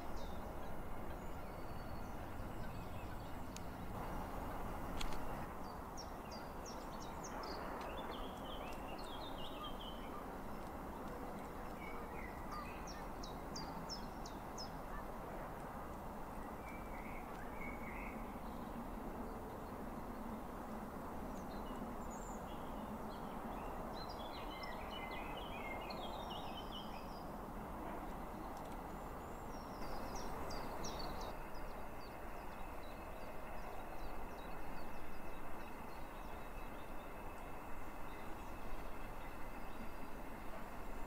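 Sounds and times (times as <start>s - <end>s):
outdoor background noise: 0.0s - 41.0s
small birds chirping: 28.4s - 40.2s.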